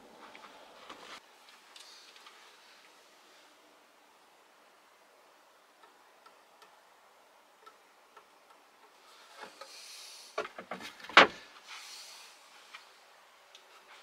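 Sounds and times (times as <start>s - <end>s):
wood rustling as handled: 8.8s - 12.0s.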